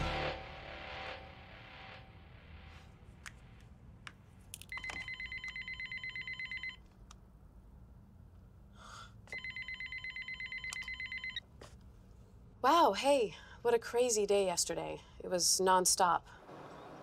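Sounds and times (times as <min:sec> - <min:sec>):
cordless phone ringing: 0:04.7 - 0:06.8, 0:09.3 - 0:11.4.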